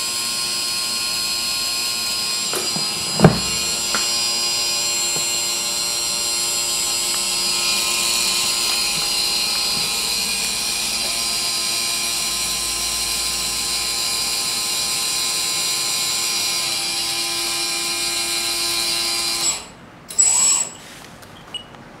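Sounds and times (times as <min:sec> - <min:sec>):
small electric motor whining: 0:00.0 - 0:20.7.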